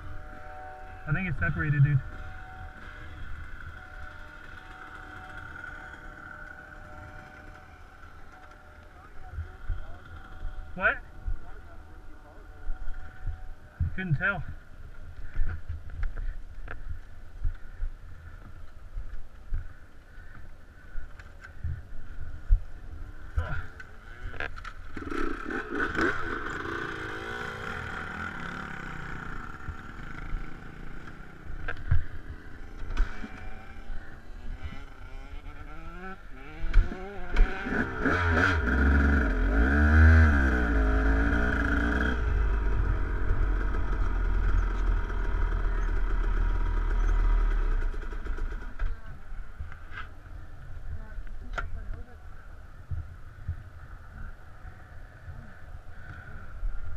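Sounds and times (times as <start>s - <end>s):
dirt bike engine revving: 0.0s - 14.4s, 23.2s - 48.9s.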